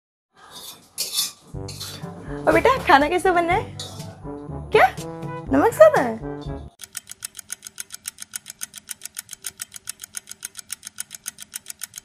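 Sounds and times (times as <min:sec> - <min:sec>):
rapid even ticking: 0:06.8 - 0:12.0.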